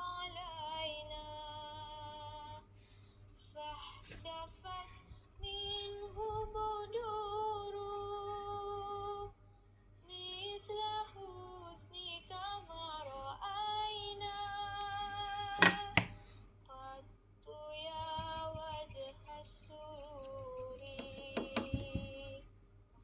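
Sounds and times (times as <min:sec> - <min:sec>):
woman singing long notes: 0:03.6 - 0:09.3.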